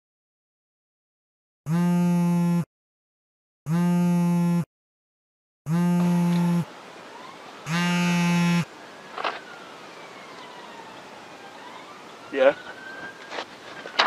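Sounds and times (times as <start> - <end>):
harsh electronic buzz tone: 1.7 - 2.7, 3.7 - 4.7, 5.7 - 6.7, 7.7 - 8.7.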